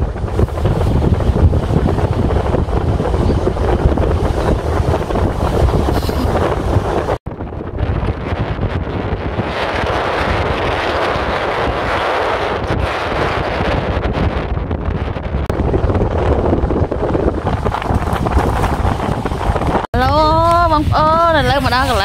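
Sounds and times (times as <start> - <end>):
low road rumble: 0.0 - 22.0
wind buffeting microphone: 0.0 - 22.0.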